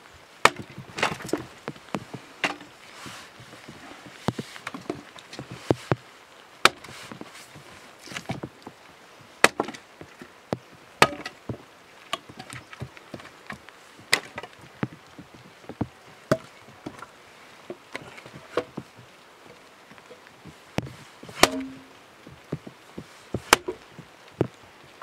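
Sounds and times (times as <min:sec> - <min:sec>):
axe chopping firewood: 0:00.4 - 0:02.7, 0:06.6 - 0:06.9, 0:09.4 - 0:09.8, 0:11.0 - 0:14.5, 0:20.8 - 0:21.9, 0:23.4 - 0:23.9
light knocks of wood: 0:00.4 - 0:06.0, 0:06.6 - 0:25.0.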